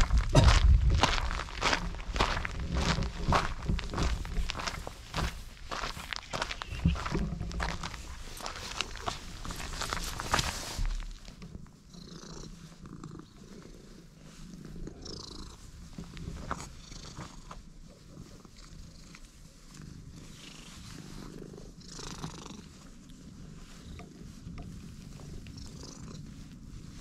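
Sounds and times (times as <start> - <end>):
cat purring: 6.6 - 27.0.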